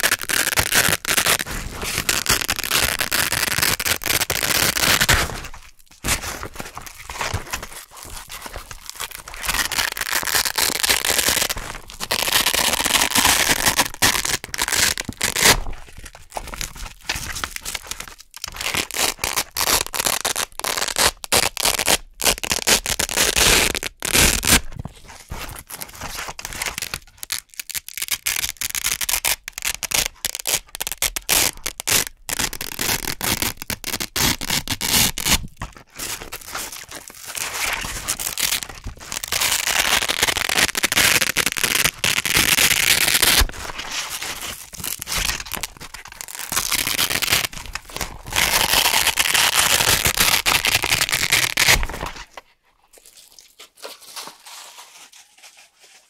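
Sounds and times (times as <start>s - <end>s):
velcro ripping off fabric: 0.0s - 6.3s, 9.4s - 15.7s, 18.5s - 24.7s, 26.5s - 35.4s, 37.3s - 52.2s.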